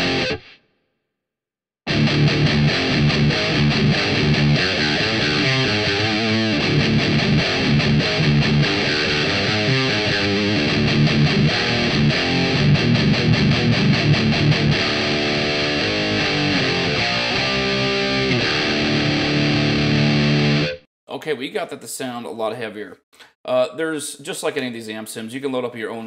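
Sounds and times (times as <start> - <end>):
distorted electric guitar riffing: 0.0 - 0.6, 1.9 - 20.8.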